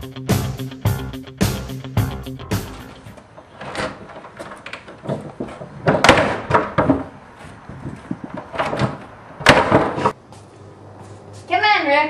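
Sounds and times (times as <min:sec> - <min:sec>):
wooden door opening and shutting: 0:02.6 - 0:10.2.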